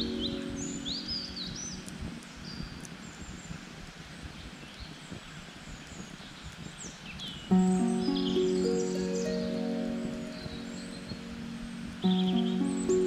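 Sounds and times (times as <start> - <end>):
birds chirping: 0.0 - 13.0
campfire crackling and popping: 0.2 - 4.0.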